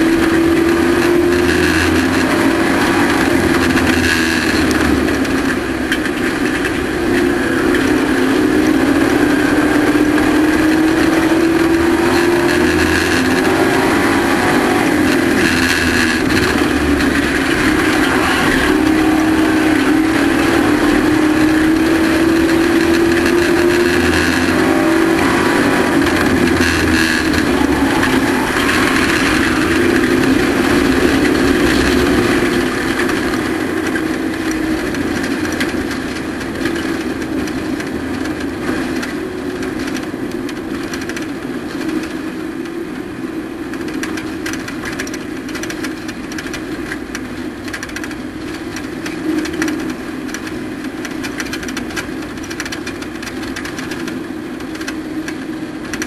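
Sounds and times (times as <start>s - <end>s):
race truck engine revving: 0.0s - 40.0s.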